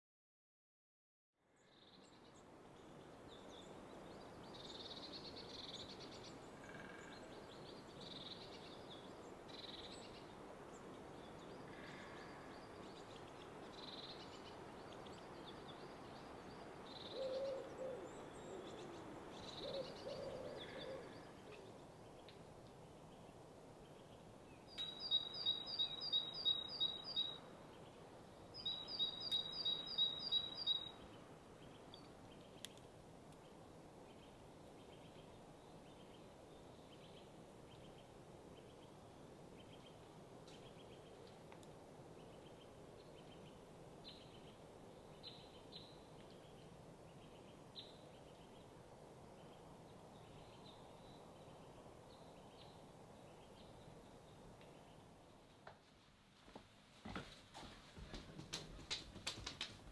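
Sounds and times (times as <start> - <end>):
songbird singing: 1.4 - 55.8
low outdoor hiss: 1.4 - 59.9
faint bird chirps: 28.6 - 32.8.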